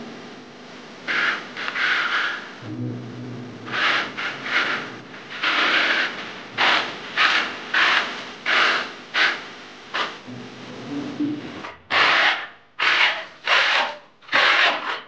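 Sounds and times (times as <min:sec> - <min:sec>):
putty blade scraping ceiling: 0:03.7 - 0:09.4, 0:11.9 - 0:15.0.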